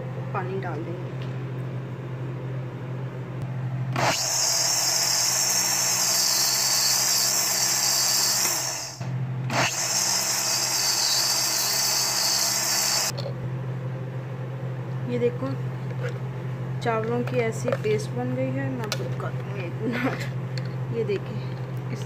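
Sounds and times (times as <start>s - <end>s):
electric blender grinding: 3.9s - 13.2s.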